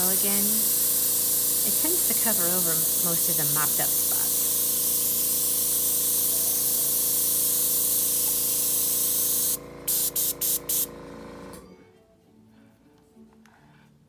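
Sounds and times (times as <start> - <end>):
airbrush blowing air: 0.0 - 10.9.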